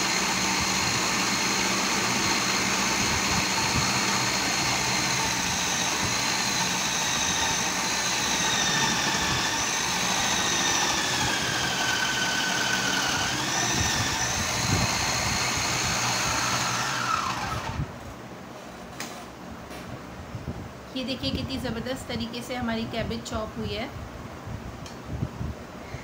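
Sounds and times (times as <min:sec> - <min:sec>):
food processor motor whine: 0:00.0 - 0:17.9.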